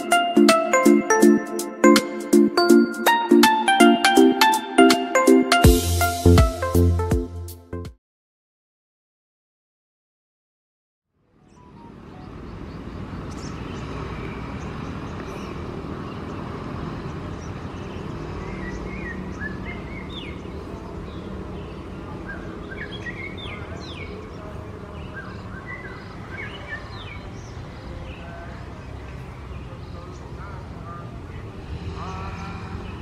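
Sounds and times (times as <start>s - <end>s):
birds chirping: 11.4s - 33.0s.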